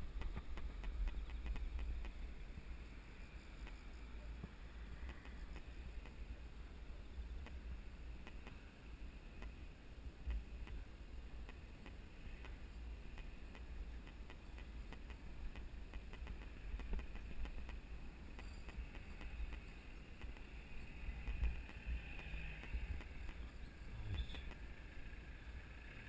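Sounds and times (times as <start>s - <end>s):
light clicks and ticks: 3.6s - 6.2s, 11.4s - 20.6s, 21.2s - 23.5s
bicycle rolling on concrete: 11.6s - 26.0s.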